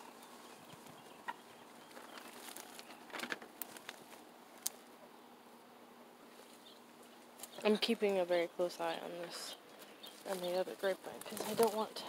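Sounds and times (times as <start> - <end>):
grapevine leaves rustling: 0.0 - 5.0, 6.2 - 12.0.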